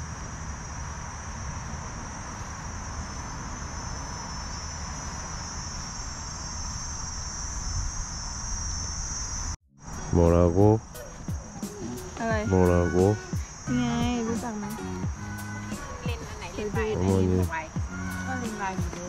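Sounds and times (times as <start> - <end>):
insects chirring: 0.0 - 19.0.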